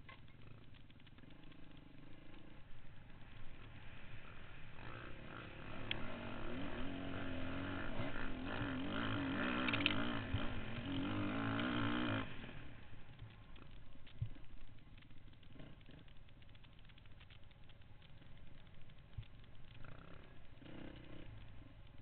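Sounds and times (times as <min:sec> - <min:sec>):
dirt bike engine revving: 0:00.4 - 0:13.8, 0:19.7 - 0:22.0.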